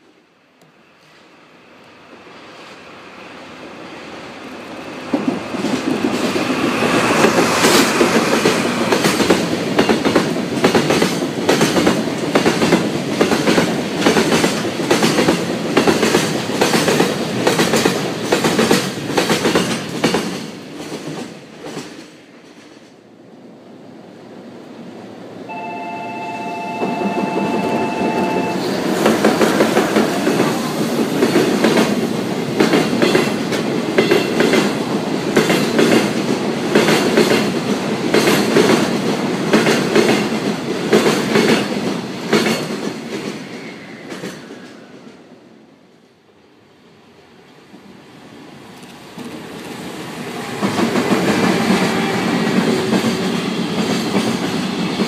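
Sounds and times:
train wheels clattering over rail joints: 5.1s - 22.9s, 31.0s - 44.6s
two-note locomotive horn: 25.5s - 28.8s.

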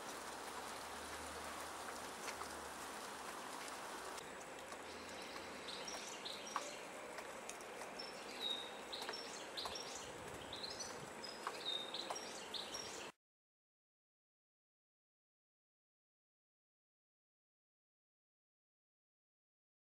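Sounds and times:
water dripping: 0.0s - 13.1s
wet snow falling hiss: 0.0s - 13.1s
finches twittering: 4.9s - 6.9s, 8.0s - 13.1s.

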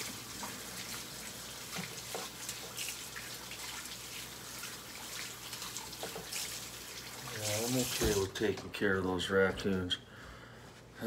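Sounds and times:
water running from a tap: 0.0s - 8.5s
water splashes and drips: 0.0s - 8.7s.

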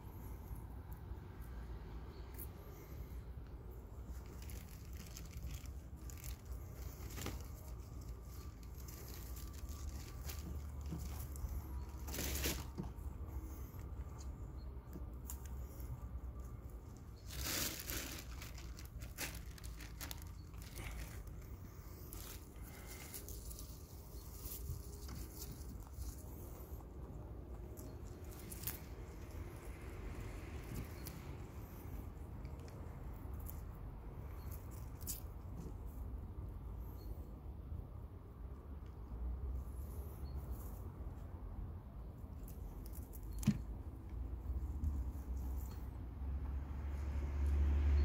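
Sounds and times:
rabbit chewing leaves: 0.0s - 37.3s, 38.3s - 47.6s
rustling in straw: 4.1s - 12.8s, 17.1s - 26.8s, 27.8s - 29.6s.

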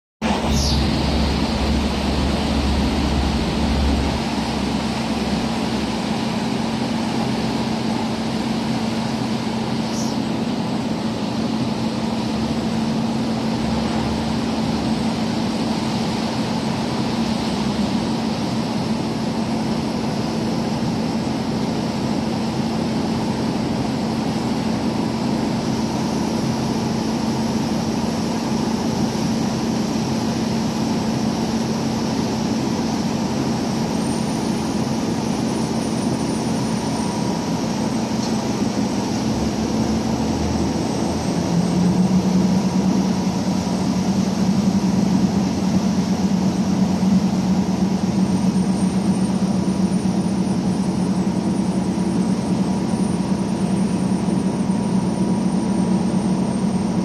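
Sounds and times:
heavy low rumble: 0.2s - 6.2s
marine engine drone: 0.2s - 57.0s
water rushing along hull: 0.3s - 57.0s.

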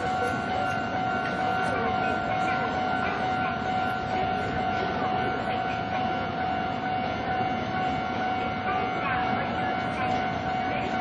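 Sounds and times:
level crossing bell ringing: 0.0s - 11.0s
low rumble of street noise: 0.0s - 11.0s.

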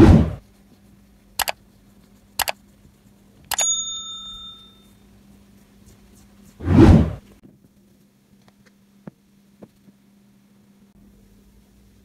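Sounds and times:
bright bell ding: 3.5s - 5.0s
short whoosh: 6.6s - 7.2s.

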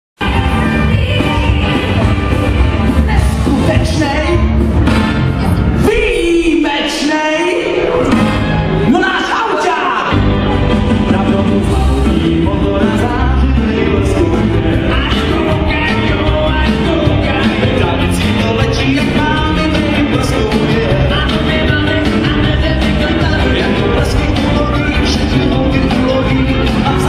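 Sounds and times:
dance band playing upbeat music: 0.2s - 27.0s
person singing: 9.6s - 27.0s.

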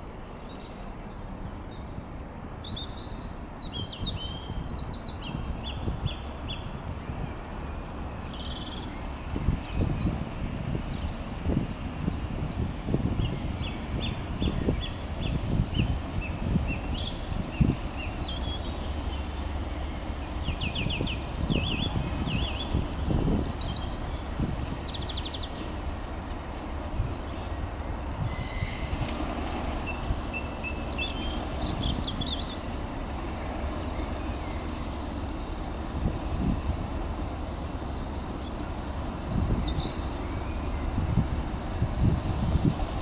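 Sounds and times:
birds chirping: 0.0s - 43.0s
diesel locomotive rumble: 0.0s - 43.0s.

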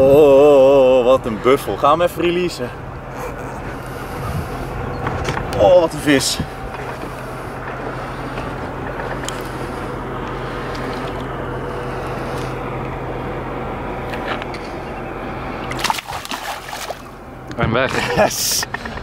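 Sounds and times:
steady low hum: 0.0s - 19.0s
water sloshing against boat: 0.0s - 19.0s
fish splash: 15.7s - 17.1s.

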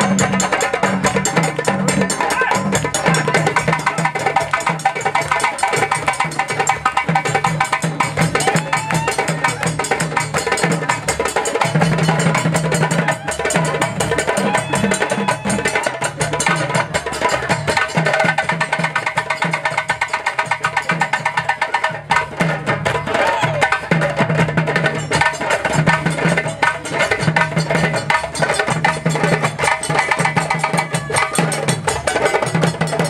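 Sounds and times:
hand drums playing fast rhythm: 0.0s - 33.0s.

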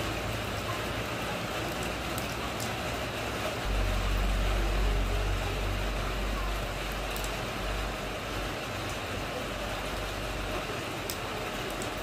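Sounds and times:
rain falling into puddle: 0.0s - 12.0s
deep low rumble: 3.6s - 8.5s.

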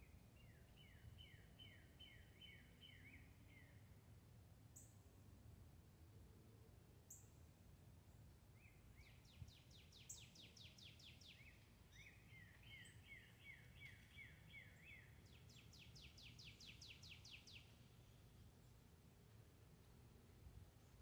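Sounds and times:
bird singing whistled notes: 0.4s - 3.8s, 8.6s - 17.9s.

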